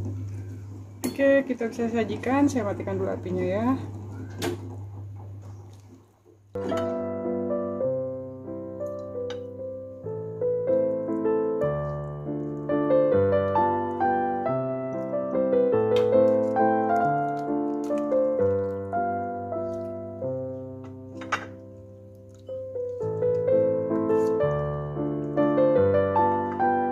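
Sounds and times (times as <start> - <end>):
piano music: 6.6 - 26.9.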